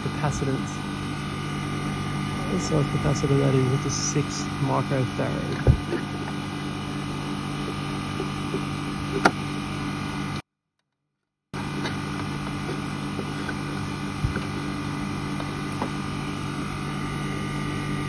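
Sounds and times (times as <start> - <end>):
air conditioner electrical hum: 0.0 - 10.4, 11.6 - 18.0.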